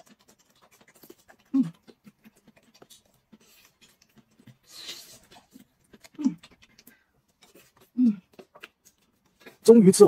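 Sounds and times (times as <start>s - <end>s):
sucking slurp: 0.0s - 9.6s
soft chewing: 0.0s - 10.0s
person humming: 8.0s - 8.3s.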